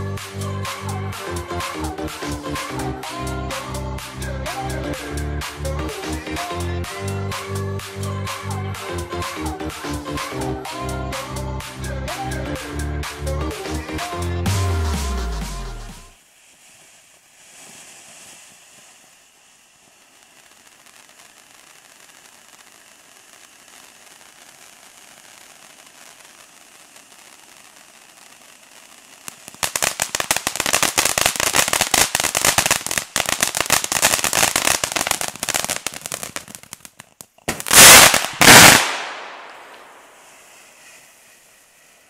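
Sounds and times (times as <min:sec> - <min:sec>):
firework crackling: 0:00.0 - 0:42.0
loud firework blasts: 0:14.8 - 0:36.8, 0:37.4 - 0:42.0
firework fountain hissing: 0:16.0 - 0:42.0.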